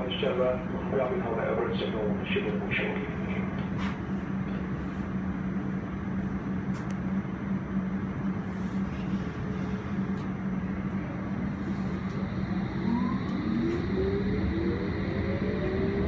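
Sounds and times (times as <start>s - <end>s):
train hum and rumble: 0.0s - 16.0s
traction motor whine: 11.0s - 16.0s.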